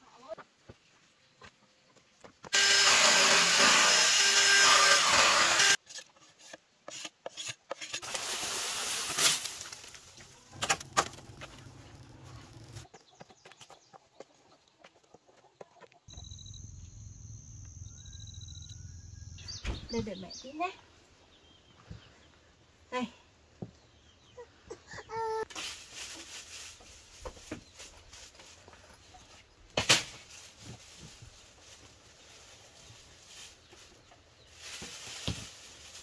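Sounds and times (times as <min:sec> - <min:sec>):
tool rasping on bamboo: 0:02.5 - 0:08.1
low outdoor rumble: 0:10.2 - 0:12.8, 0:16.1 - 0:20.4
high chirps: 0:16.1 - 0:20.4.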